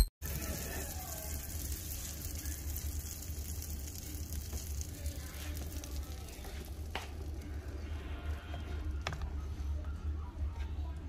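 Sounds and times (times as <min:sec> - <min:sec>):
butter sizzling in frying pan: 0:00.2 - 0:07.8.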